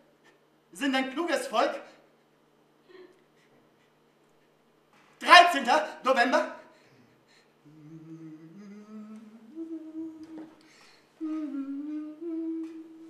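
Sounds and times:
man humming: 7.0s - 13.0s.

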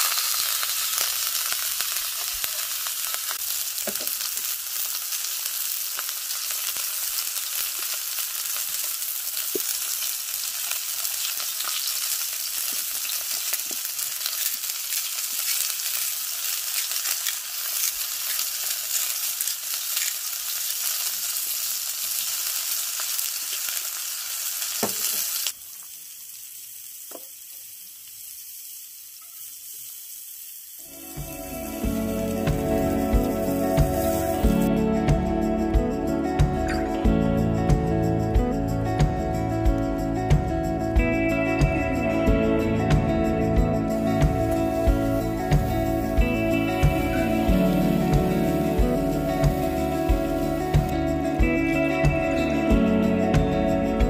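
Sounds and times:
meat sizzling in a pan: 0.0s - 34.7s, 43.9s - 52.2s.

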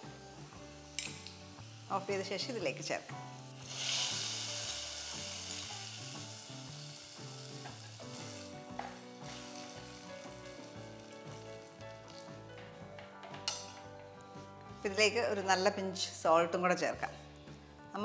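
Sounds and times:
hot ghee sizzling: 0.0s - 12.5s.

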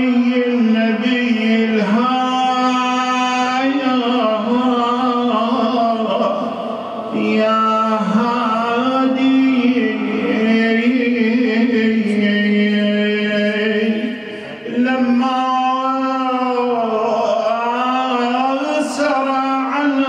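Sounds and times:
man chanting: 0.0s - 20.0s
breath: 14.2s - 14.6s.

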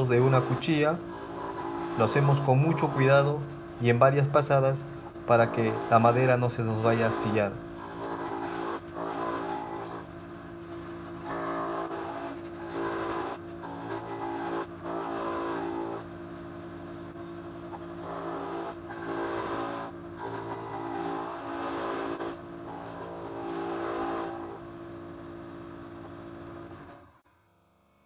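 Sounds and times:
cutter biting into wood: 0.0s - 3.5s, 4.9s - 10.1s, 11.2s - 16.1s, 17.7s - 24.6s
spindle moulder motor whine: 0.0s - 28.0s.

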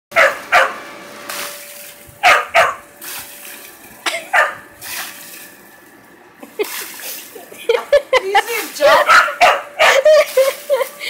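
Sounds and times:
small dog barking: 0.1s - 0.8s, 2.2s - 2.8s, 4.3s - 4.6s, 8.9s - 10.0s
water spraying hiss: 3.0s - 3.8s, 4.8s - 5.5s, 6.5s - 7.6s, 10.0s - 11.0s.

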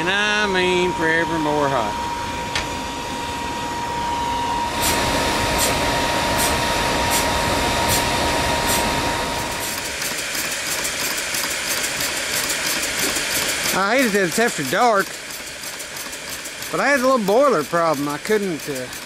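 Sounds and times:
steam engine exhaust beats: 0.0s - 19.0s
steam hissing: 4.6s - 19.0s.

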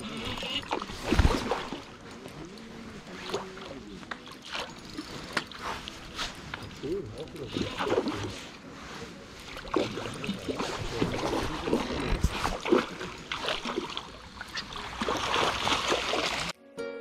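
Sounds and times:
water splashing and sloshing: 0.0s - 16.6s
guitar music: 16.6s - 17.0s.

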